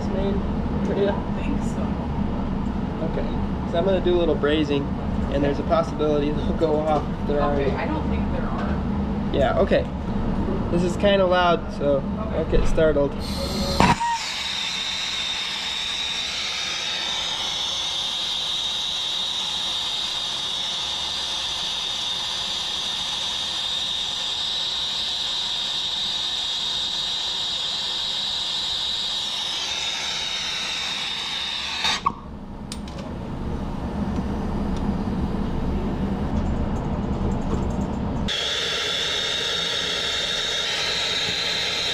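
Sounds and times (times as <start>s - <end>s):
low hum: 0.0s - 41.9s
torch flame hissing and whistling: 13.2s - 32.1s, 38.3s - 41.9s
torch flame pop: 13.7s - 14.4s.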